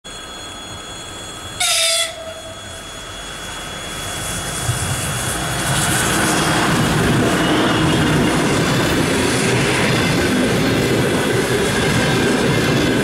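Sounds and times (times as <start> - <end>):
train rumbling: 0.1 - 13.0
train horn blast: 1.6 - 2.7.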